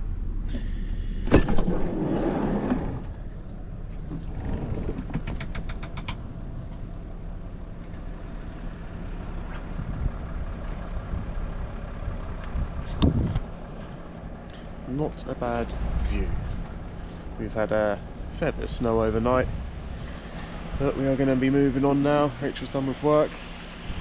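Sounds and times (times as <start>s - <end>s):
sliding van door clattering open: 1.3s - 3.2s, 4.0s - 6.2s
vehicle engine running: 2.0s - 24.0s.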